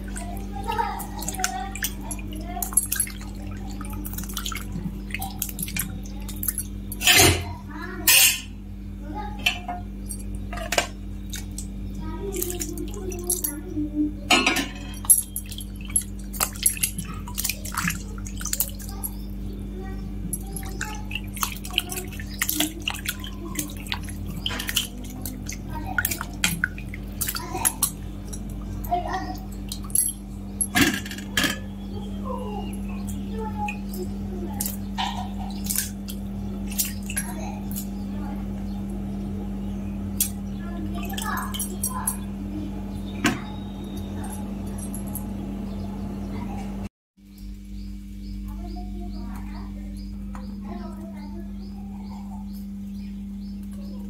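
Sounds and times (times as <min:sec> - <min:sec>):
water splashing and dripping: 0:00.0 - 0:07.0, 0:11.2 - 0:13.7, 0:14.9 - 0:19.4, 0:20.3 - 0:31.0, 0:32.6 - 0:38.5, 0:40.2 - 0:42.3
steady low hum: 0:00.0 - 0:54.0.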